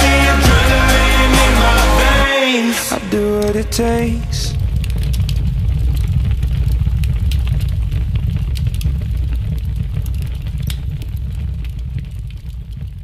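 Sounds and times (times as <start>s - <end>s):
deep low rumble: 3.2s - 13.0s.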